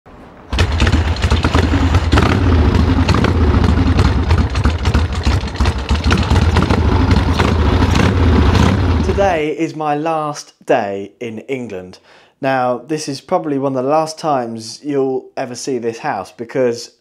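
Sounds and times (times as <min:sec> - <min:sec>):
motorcycle engine idling: 0:00.5 - 0:09.4.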